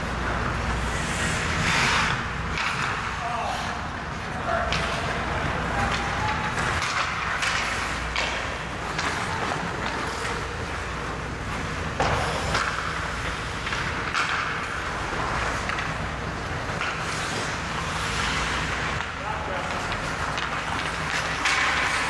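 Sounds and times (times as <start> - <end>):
hockey sticks and puck clacking: 0.0 - 22.0
skates scraping ice: 0.0 - 22.0
steady low hum: 0.0 - 22.0.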